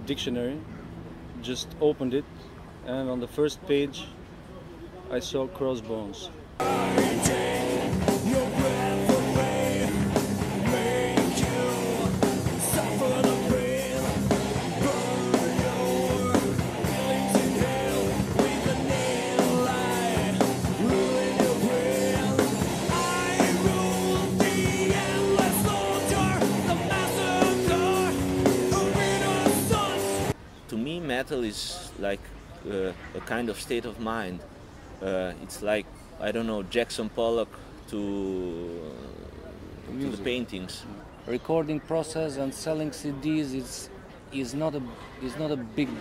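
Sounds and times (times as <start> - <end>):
distorted electric guitars: 6.6 - 30.4
drum kit: 6.6 - 30.4
man singing: 6.6 - 30.4.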